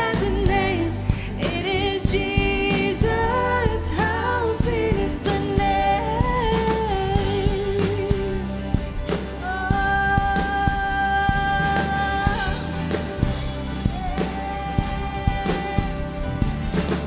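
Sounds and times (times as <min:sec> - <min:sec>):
band playing with drum kit: 0:00.0 - 0:17.0
singers holding long notes: 0:09.4 - 0:17.0.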